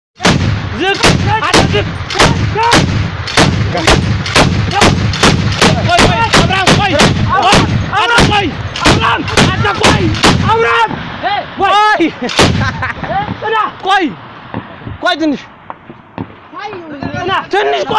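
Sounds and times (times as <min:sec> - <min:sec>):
heavy machine gun firing: 0:00.2 - 0:10.5.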